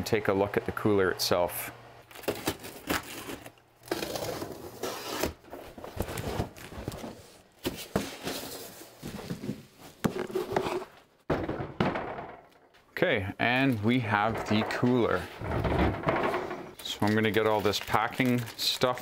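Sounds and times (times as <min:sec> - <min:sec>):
cardboard crinkling and tearing: 0:02.1 - 0:07.3, 0:16.8 - 0:19.0
knocks and thuds: 0:11.3 - 0:12.7, 0:14.1 - 0:16.8.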